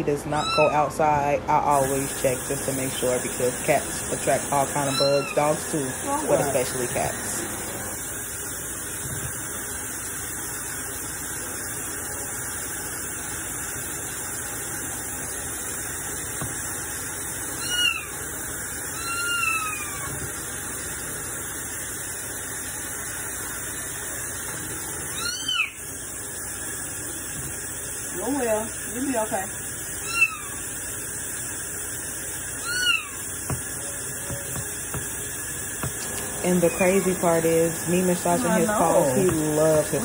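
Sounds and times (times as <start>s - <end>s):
kitten mewing: 0.4s - 0.8s, 4.8s - 5.4s, 19.0s - 20.2s, 32.6s - 33.2s
tap running into a sink: 9.0s - 9.5s, 16.3s - 16.7s, 27.3s - 27.7s, 33.4s - 36.2s.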